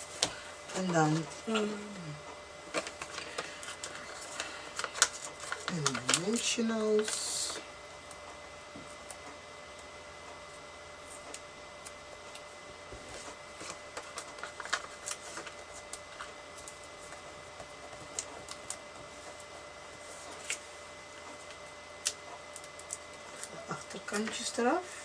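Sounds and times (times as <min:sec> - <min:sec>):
paper rustling and tapping: 0:02.7 - 0:07.2, 0:11.3 - 0:19.4.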